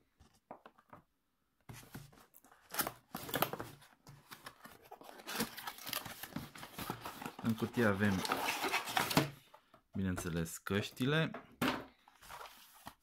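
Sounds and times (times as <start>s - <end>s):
cardboard rustling and scraping: 1.7s - 9.4s, 12.1s - 13.0s.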